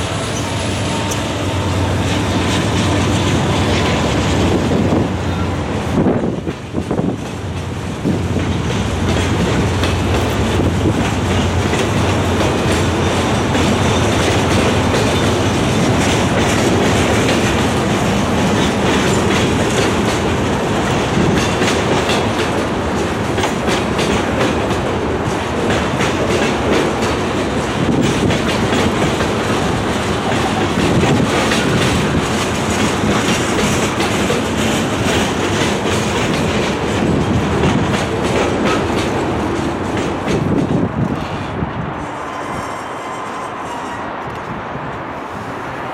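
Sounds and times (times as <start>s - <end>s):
steel wheels rumbling on rail: 0.0s - 45.9s
wheels clicking over rail joints: 6.2s - 41.4s.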